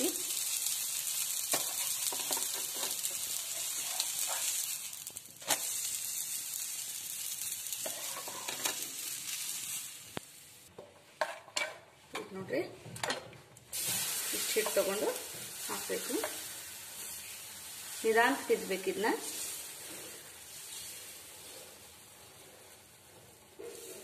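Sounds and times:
oil sizzling: 0.0 - 12.0, 13.7 - 24.0
metal spatula scraping a pan: 7.8 - 8.8.

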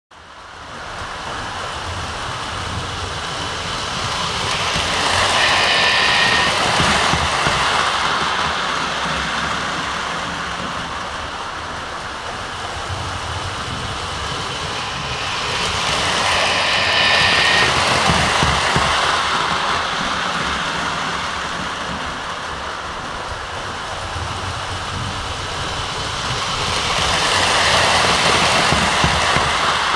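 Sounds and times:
model train rolling and motor: 0.7 - 29.9
short train whistle: 4.0 - 8.2, 14.4 - 19.6.

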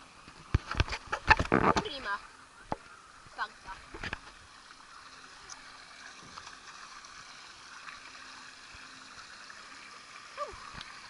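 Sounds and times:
water rushing down a waterslide: 0.0 - 11.0.

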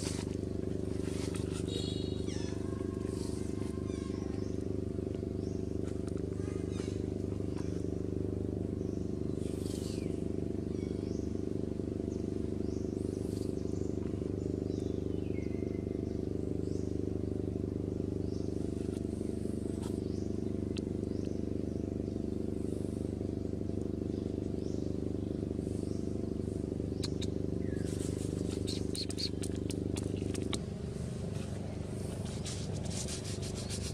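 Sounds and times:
steady low hum: 0.0 - 33.9
faint high chirps: 28.5 - 30.6.

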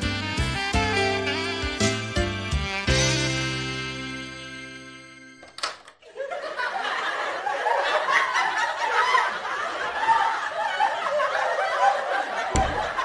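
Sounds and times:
studio audience laughing: 6.0 - 13.0.

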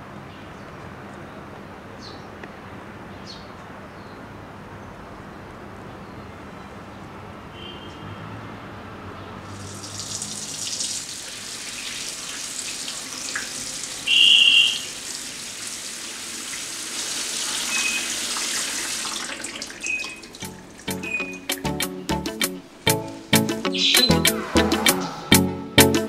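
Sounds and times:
water running from faucet: 9.5 - 21.6
short high chirp: 21.0 - 21.6, 23.7 - 25.9.

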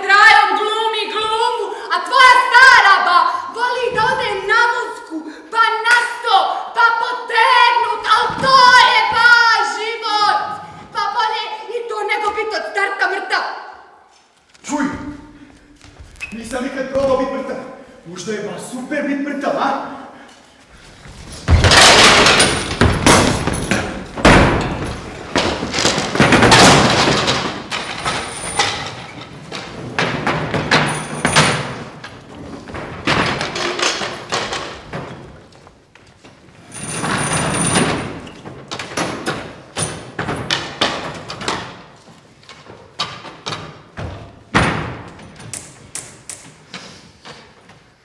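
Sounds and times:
tables and chairs banging: 21.2 - 35.5, 36.8 - 45.8.

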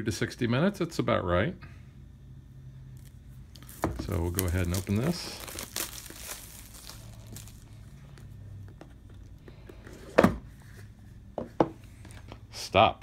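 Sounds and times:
plastic shrink wrap crinkling: 3.0 - 7.8.

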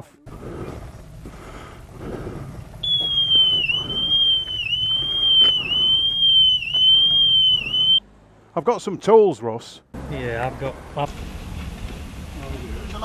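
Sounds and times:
motorcycle alarm tone: 2.8 - 8.0.

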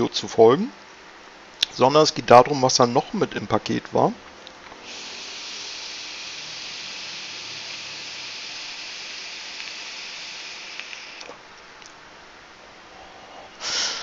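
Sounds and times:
e-cigarette drag hiss: 4.8 - 11.3, 13.6 - 14.0.

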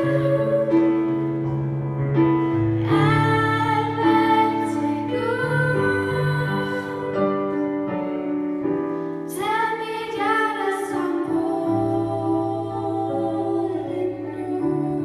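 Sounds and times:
two women singing together: 0.0 - 1.0, 2.9 - 7.6, 9.3 - 15.0
instrumental accompaniment of low chords: 0.0 - 9.3.

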